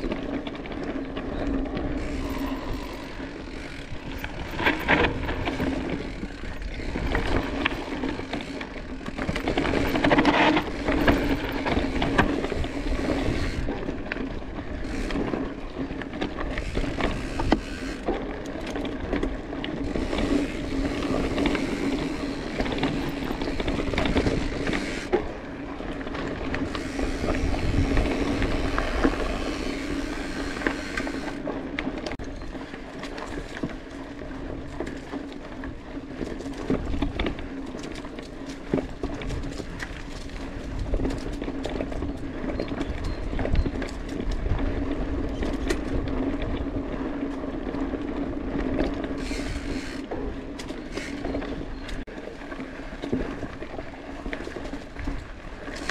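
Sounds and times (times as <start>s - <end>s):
bike tyre noise on dirt: 0.0s - 55.9s
freewheel ratchet buzzing: 16.6s - 18.1s, 26.6s - 31.4s, 49.2s - 50.0s.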